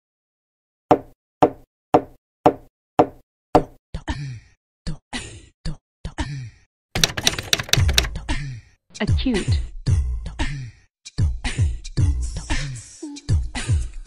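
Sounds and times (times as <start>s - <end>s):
sharp knocks: 7.0s - 8.2s.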